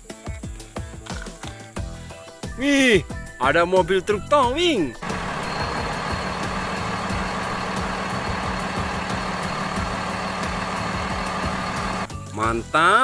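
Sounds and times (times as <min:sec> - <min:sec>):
truck engine running: 0:05.0 - 0:12.1.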